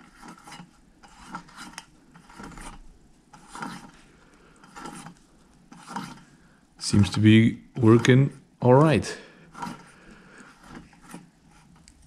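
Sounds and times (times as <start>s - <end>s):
piston rubbing in cylinder bore: 0.0s - 4.0s, 4.6s - 6.3s, 9.5s - 12.0s.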